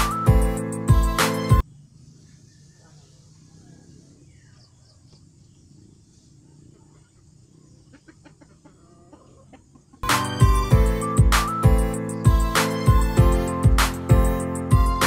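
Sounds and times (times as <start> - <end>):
loud guitar music: 0.0 - 1.6, 10.0 - 15.0
chickens clucking: 2.2 - 10.1.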